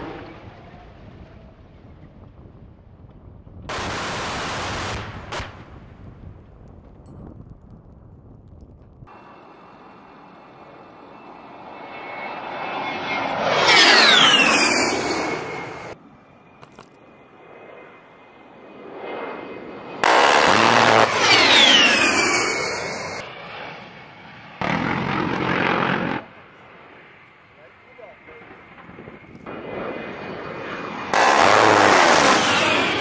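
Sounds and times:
jet engines whining in flyby: 0.0s - 6.3s, 9.1s - 33.0s
burst of noise: 20.0s - 23.2s, 31.1s - 33.0s.

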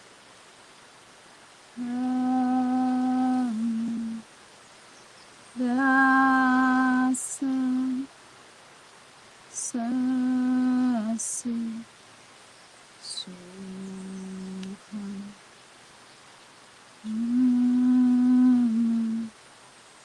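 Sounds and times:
woman humming low notes: 1.8s - 4.2s, 5.6s - 8.1s, 9.6s - 11.9s, 13.0s - 15.4s, 17.0s - 19.4s.

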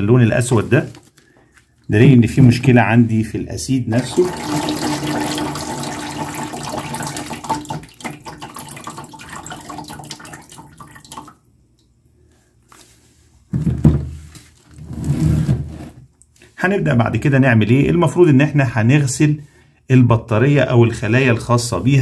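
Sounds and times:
liquid trickling into plastic tub: 4.0s - 11.4s.

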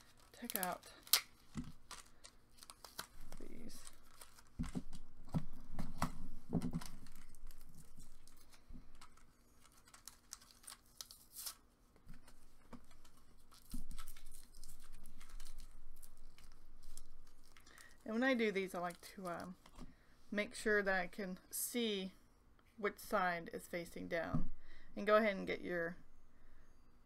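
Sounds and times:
paper crinkling: 0.0s - 19.8s.

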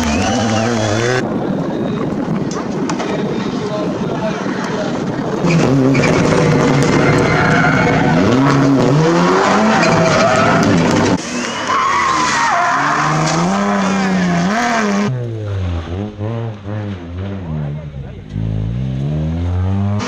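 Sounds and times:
rally car engines revving: 0.0s - 20.0s
tyres squealing: 5.4s - 14.7s.

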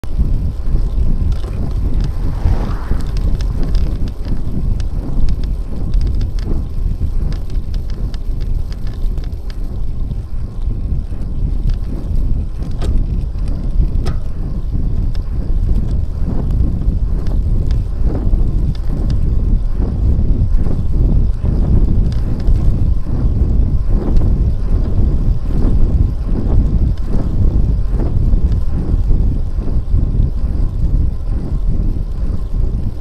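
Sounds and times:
wind blowing over microphone: 0.0s - 33.0s
small clicks: 0.7s - 10.7s.

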